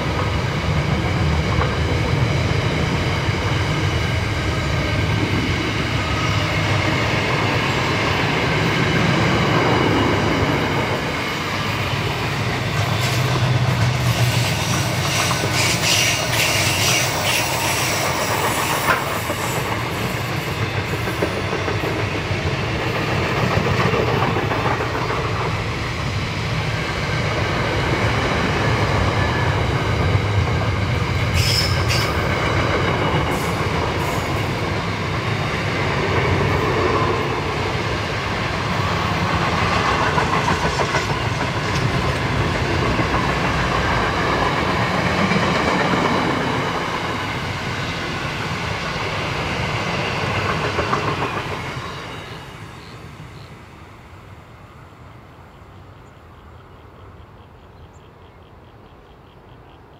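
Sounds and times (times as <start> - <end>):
freight train wagons rolling: 0.0 - 25.7.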